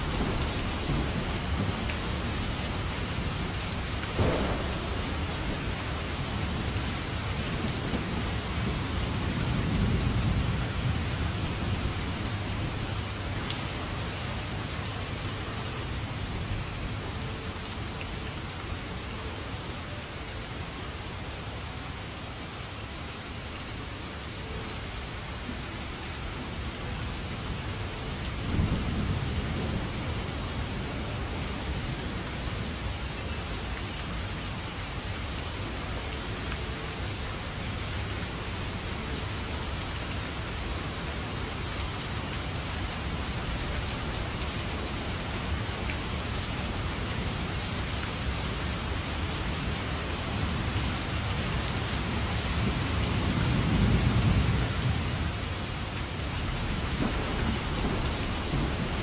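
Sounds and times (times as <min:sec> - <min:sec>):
thunder rumbling: 0:00.0 - 0:13.2, 0:56.4 - 0:59.0
heavy rain falling: 0:00.0 - 0:59.0.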